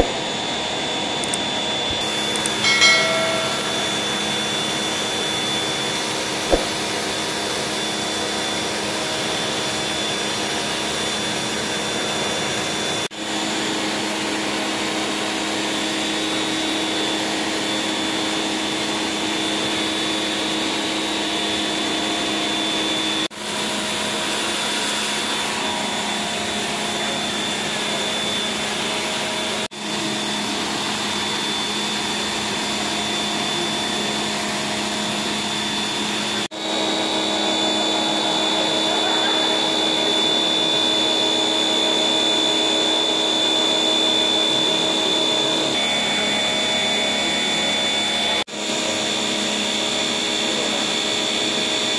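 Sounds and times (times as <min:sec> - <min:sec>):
pressure washer running: 0:00.0 - 0:00.2.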